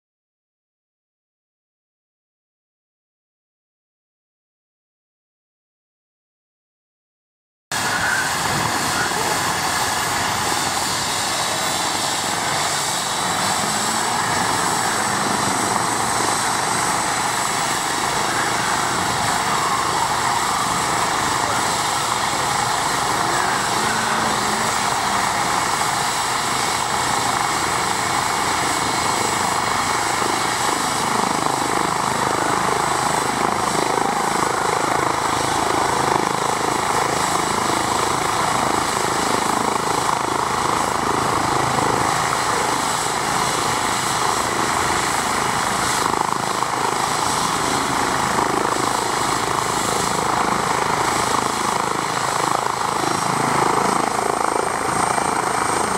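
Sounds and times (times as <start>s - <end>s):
helicopter rotor noise: 7.7s - 55.9s
helicopter turbine whine: 7.7s - 55.9s.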